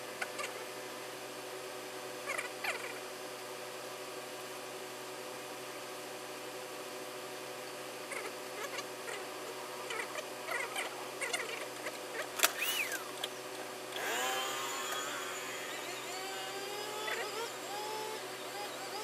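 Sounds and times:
wavering whine: 12.5s - 13.2s, 14.0s - 19.0s.

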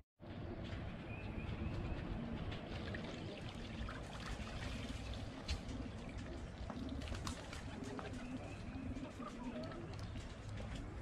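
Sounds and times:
water pouring and trickling: 2.6s - 7.6s.

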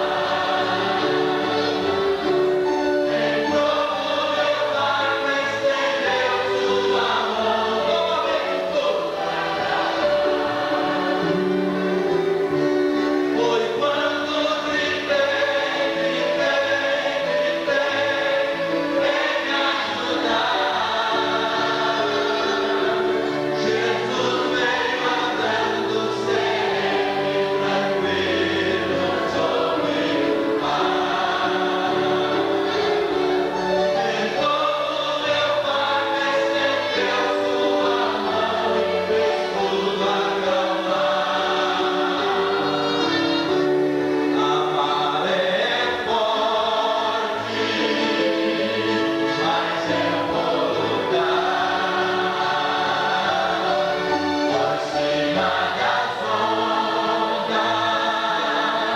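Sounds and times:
congregation singing a hymn: 0.0s - 58.9s
man singing over microphone: 13.4s - 18.3s.

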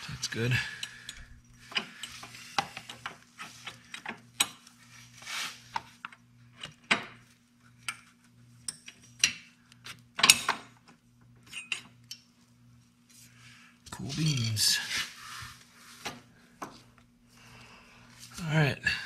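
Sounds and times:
steady low hum: 0.0s - 6.6s.

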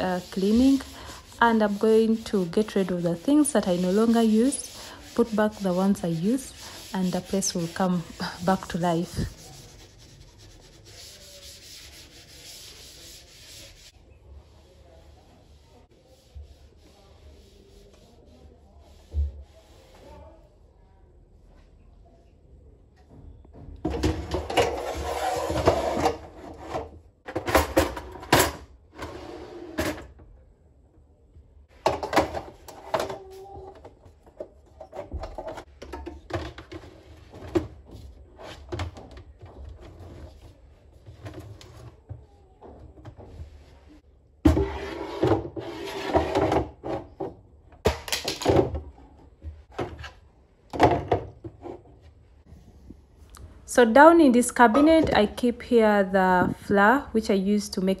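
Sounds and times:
knocking and clattering in cabinet: 23.5s - 28.7s, 31.8s - 33.2s.

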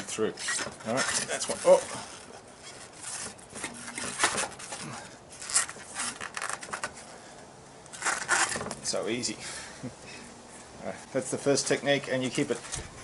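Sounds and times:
bicycle tyre scraping brake pads: 0.0s - 9.6s.

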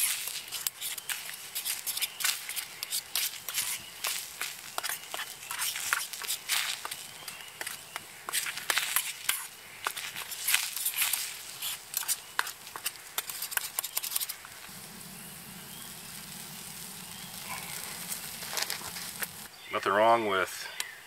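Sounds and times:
eggs sizzling in a skillet: 0.0s - 19.5s
faint steady hum: 14.5s - 19.6s.

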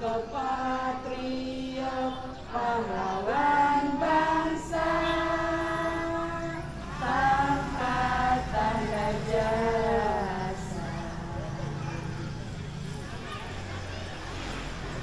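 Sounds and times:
group singing a cappella: 0.0s - 11.8s.

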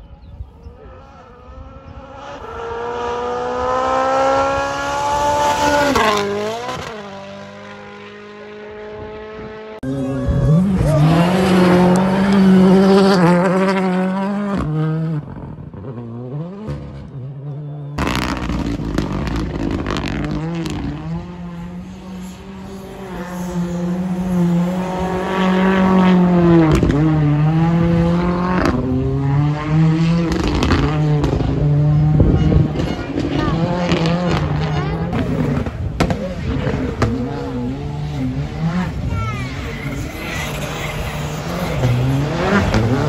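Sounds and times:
rally car engines revving hard: 0.7s - 43.0s.

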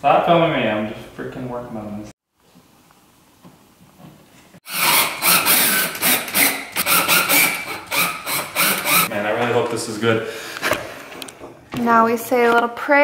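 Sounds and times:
cordless drill boring into wall: 4.6s - 9.1s.

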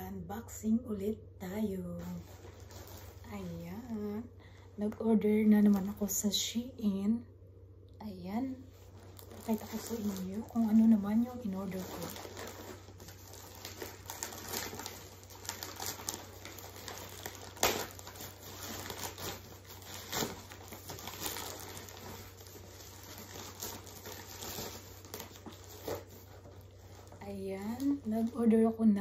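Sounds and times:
plastic bag crinkling: 1.9s - 4.2s, 8.6s - 29.0s
plastic bag snaps: 15.5s - 18.2s.

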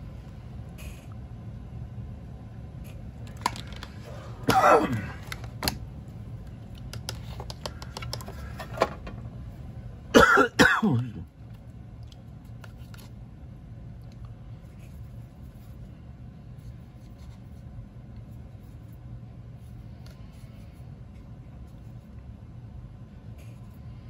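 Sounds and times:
low room hum: 0.0s - 24.0s
person clearing throat: 4.4s - 5.2s, 10.1s - 11.3s.

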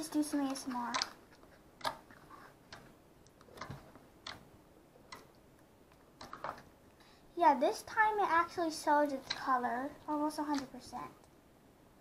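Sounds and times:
slime squishing: 0.0s - 6.8s.

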